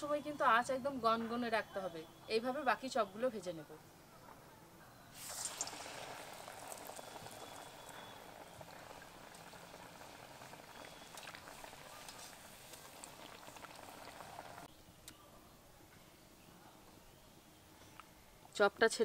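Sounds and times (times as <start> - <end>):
oil sizzling and crackling: 5.2 - 14.7.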